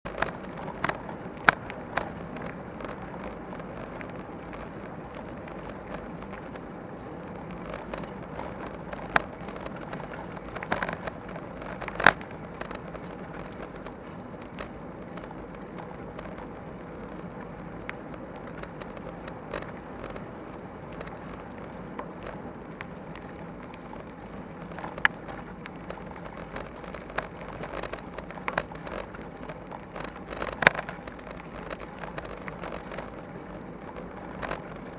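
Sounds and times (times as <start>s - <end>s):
bicycle tyres rolling on gravel: 0.0s - 34.9s.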